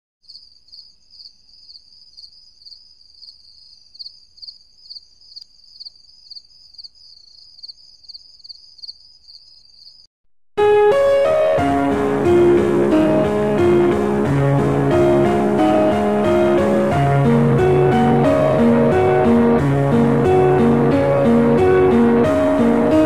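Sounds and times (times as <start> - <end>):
cricket chirping: 0.2 - 10.1
guitar music: 10.6 - 23.0.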